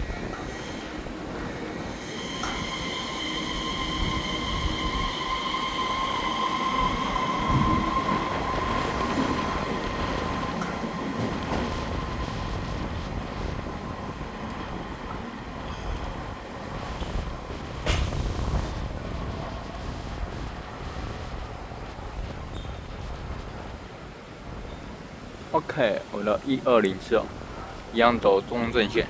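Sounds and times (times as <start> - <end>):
electric train rumbling: 0.0 - 29.0
high-pitched train squeal: 0.3 - 1.0, 1.8 - 13.0, 15.6 - 16.2.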